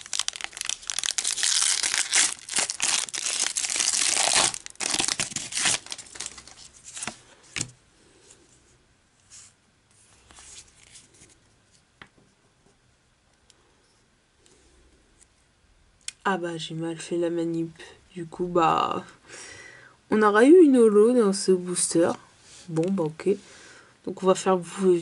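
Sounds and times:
foil wrapper crinkling and tearing: 0:00.0 - 0:07.2
cards rustling and clicking: 0:00.0 - 0:07.8.

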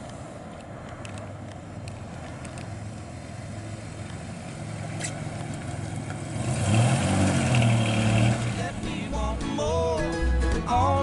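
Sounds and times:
pickup truck engine driving past: 0:01.3 - 0:09.9.

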